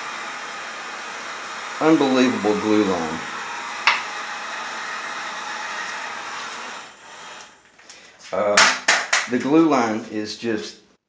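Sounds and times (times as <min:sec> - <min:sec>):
hot-air blower running: 0:00.0 - 0:08.0.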